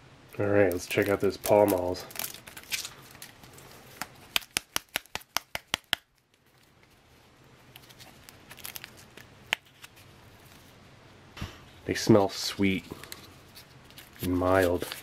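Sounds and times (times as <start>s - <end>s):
cellophane wrapper crinkling: 0.7s - 10.8s, 12.9s - 15.0s
paper wrapping rustling: 0.7s - 10.8s, 12.7s - 15.0s
pack tapped against palm: 4.3s - 6.1s.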